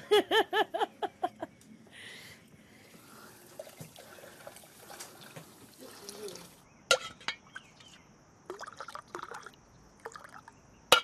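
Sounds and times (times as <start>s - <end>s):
woman laughing: 0.0s - 1.5s
liquid sloshing in wooden churn: 3.1s - 6.6s.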